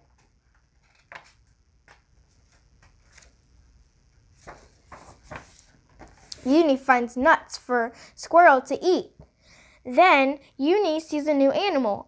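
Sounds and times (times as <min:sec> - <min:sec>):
book page turning: 0:00.8 - 0:03.4, 0:04.4 - 0:06.5.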